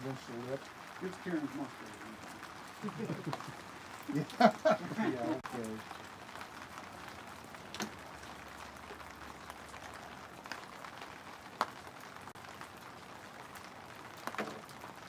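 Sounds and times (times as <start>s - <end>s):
light rain hissing: 0.0s - 15.0s.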